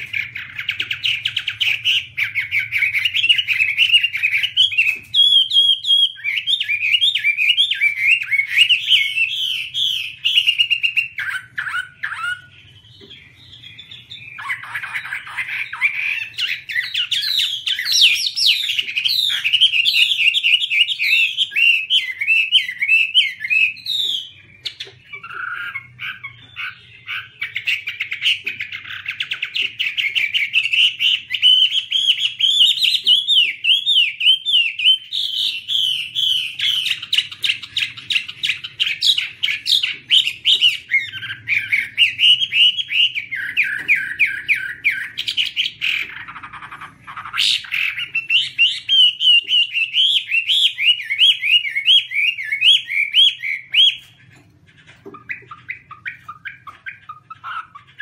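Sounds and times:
songbird singing varied song: 0.0 - 58.0.

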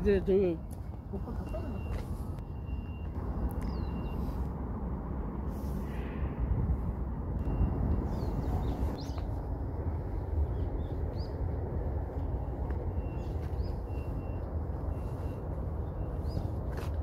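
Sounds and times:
low rumble: 0.9 - 13.3.

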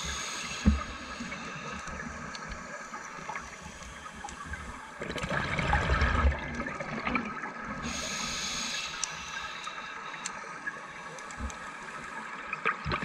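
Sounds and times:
regulator air hiss: 0.0 - 4.9, 7.8 - 12.0
exhaled bubbles gurgling underwater: 0.0 - 13.0.

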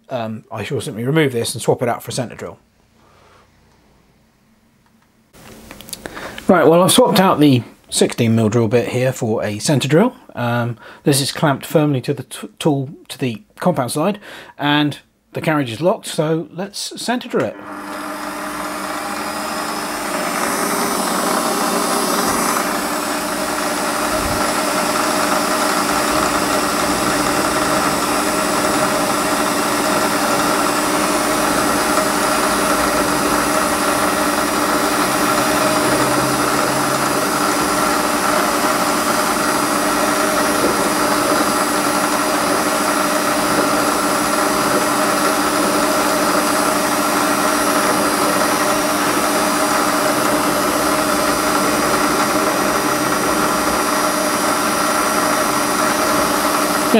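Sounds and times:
lathe motor whining: 17.5 - 56.9.

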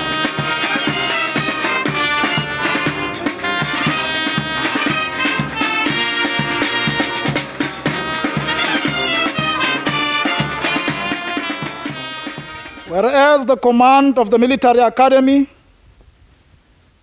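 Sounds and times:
steady drum beat: 0.0 - 13.2
brass band playing a march: 0.0 - 13.4.

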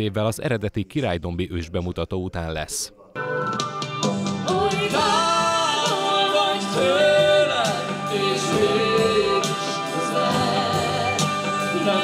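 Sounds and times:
instrumental accompaniment: 3.2 - 12.0
woman and man singing duet: 4.4 - 12.0.

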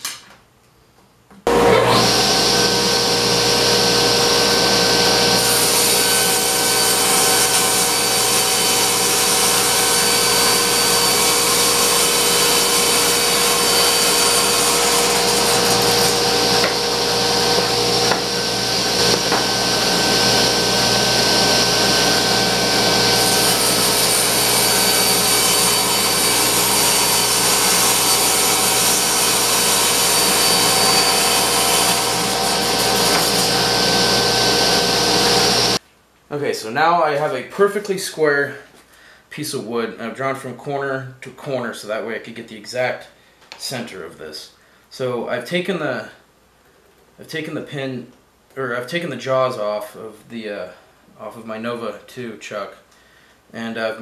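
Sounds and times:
table saw cutting a board: 1.5 - 35.8.

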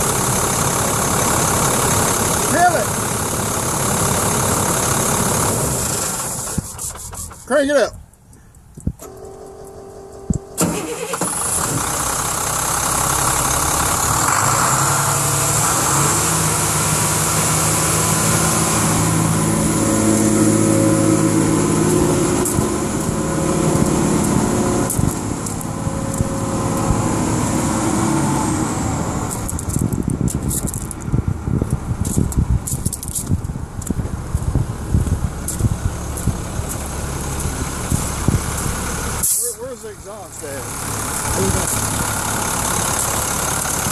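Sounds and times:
diesel engine idling: 0.0 - 7.8, 9.0 - 43.9
engine starter cranking: 9.0 - 13.9
high whine: 13.8 - 30.7.

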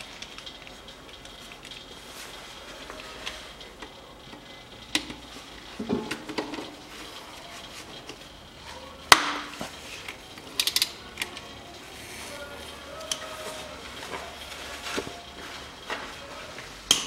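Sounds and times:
socket wrench clicking: 10.4 - 11.5.

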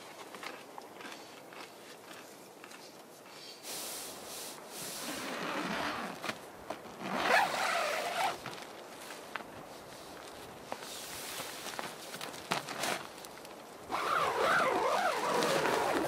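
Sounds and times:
tent fabric rustling: 3.8 - 16.0
zipper rasp: 5.0 - 6.2, 7.0 - 8.4, 13.9 - 16.0.

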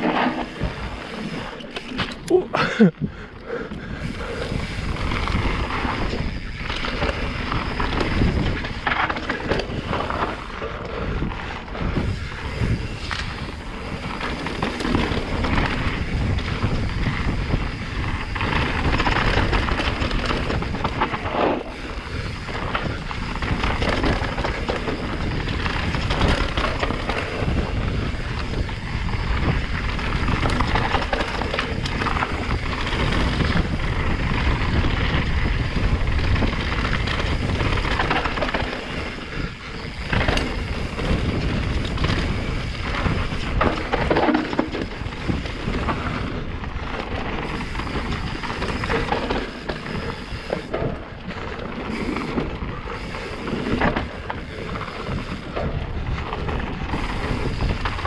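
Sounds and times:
bike clattering over bumps: 0.0 - 58.0.

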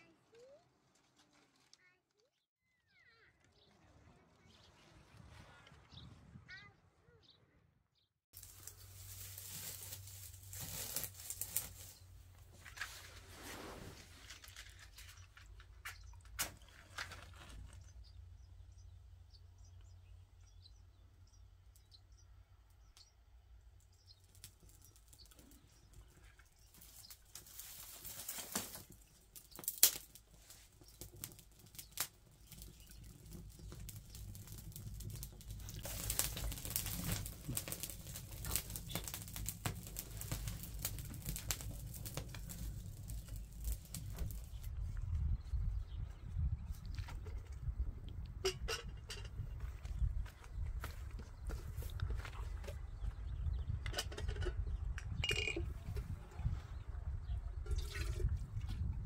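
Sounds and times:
brushwood rustling and crackling: 0.0 - 2.3, 8.3 - 18.4, 23.8 - 54.8.

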